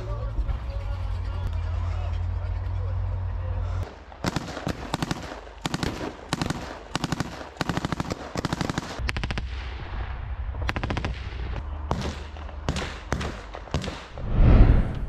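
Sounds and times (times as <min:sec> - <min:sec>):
automatic rifle fire bursts: 0:04.2 - 0:09.4
low rumble: 0:14.1 - 0:15.0.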